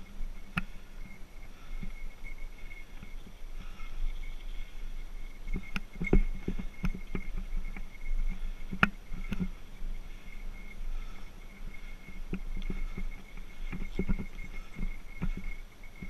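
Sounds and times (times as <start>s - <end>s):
bike tyres rumbling on dirt: 0.0s - 16.0s
bike knocks and rattles: 5.5s - 10.2s, 11.8s - 16.0s.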